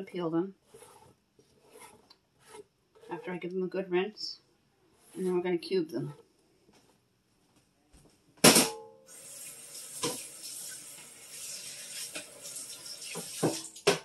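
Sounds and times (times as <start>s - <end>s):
faucet running into sink: 9.1s - 14.0s.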